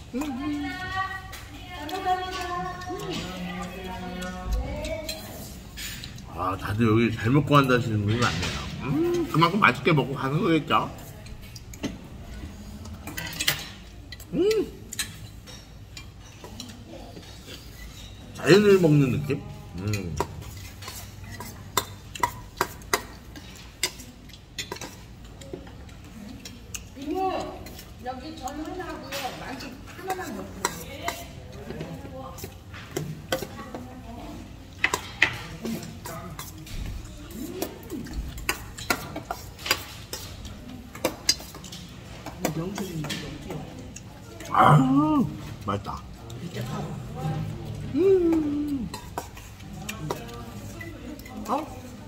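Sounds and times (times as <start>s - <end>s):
man chewing food: 0.0s - 52.0s
murmur of voices: 0.0s - 52.0s
dishes and cutlery clinking: 0.1s - 44.5s, 45.3s - 52.0s
man humming: 14.3s - 14.8s, 47.9s - 48.9s.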